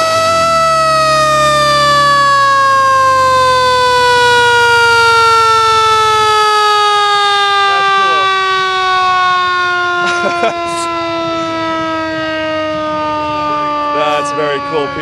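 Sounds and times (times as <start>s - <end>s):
mechanical siren wailing: 0.0s - 15.0s.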